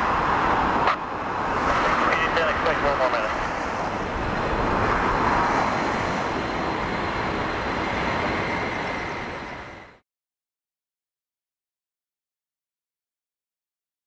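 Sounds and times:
jet engines roaring: 0.0s - 10.0s.

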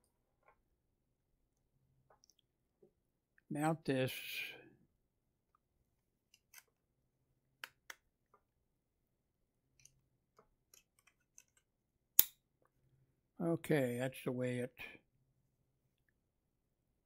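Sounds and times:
faint clicks and taps of handling: 9.7s - 11.7s.

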